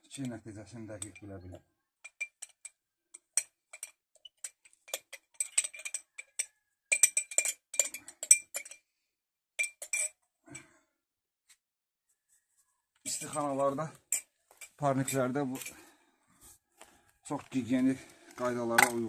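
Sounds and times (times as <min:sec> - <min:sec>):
glass jar clinking: 0:00.1 - 0:08.8, 0:09.6 - 0:10.7, 0:13.0 - 0:15.8.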